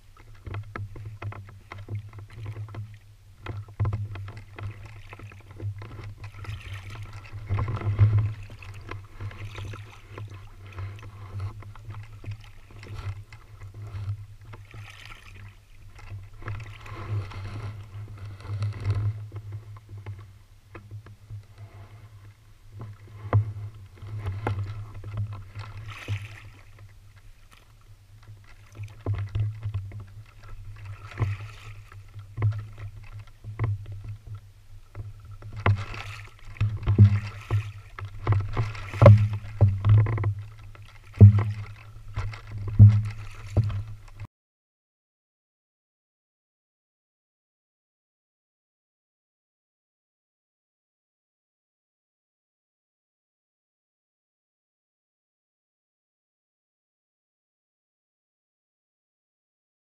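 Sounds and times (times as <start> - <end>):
paddle strokes splashing: 0.0 - 44.3
water rumbling against hull: 0.0 - 44.3
small knocks: 34.9 - 44.2.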